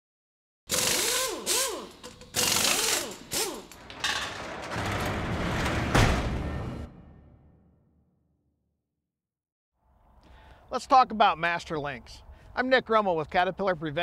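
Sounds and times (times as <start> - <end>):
power tools whirring: 0.7 - 4.0
heavy hit: 4.7 - 7.9.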